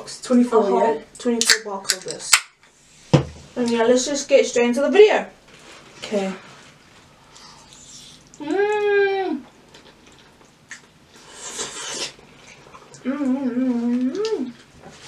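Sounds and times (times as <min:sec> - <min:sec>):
noisy slurp: 0:11.2 - 0:13.4
person humming mmm: 0:13.0 - 0:14.6.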